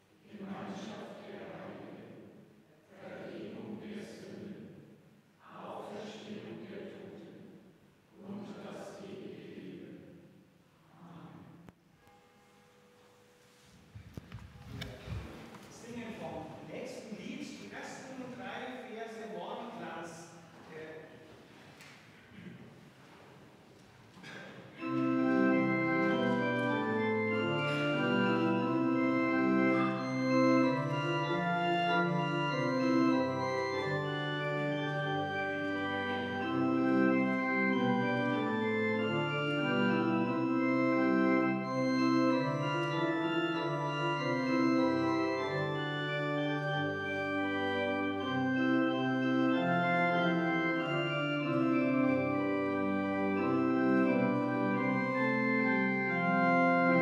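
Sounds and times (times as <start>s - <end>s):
pipe organ playing chords: 24.2s - 57.0s.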